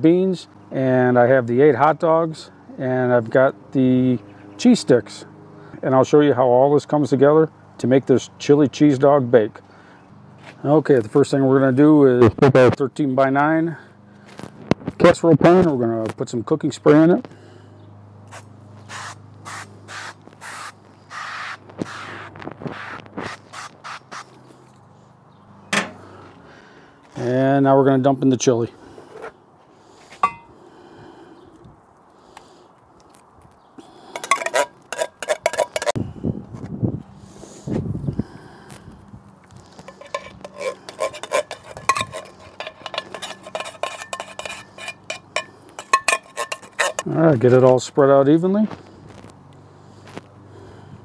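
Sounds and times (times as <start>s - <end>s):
metal spoon scraping tin can: 34.1s - 36.0s, 39.8s - 47.2s.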